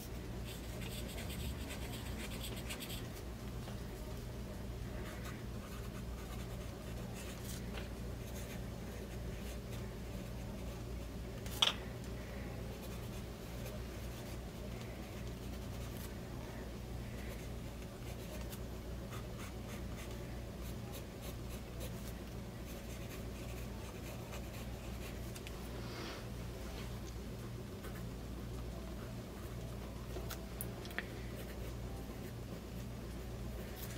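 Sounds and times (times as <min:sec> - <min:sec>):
fountain pen scratching paper: 0:00.5 - 0:03.0.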